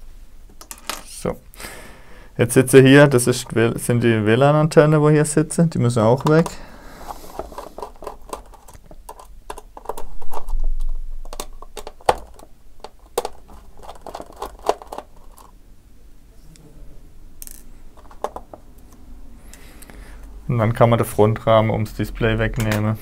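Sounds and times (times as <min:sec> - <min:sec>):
screwdriver clicking and scraping: 0:06.3 - 0:10.4.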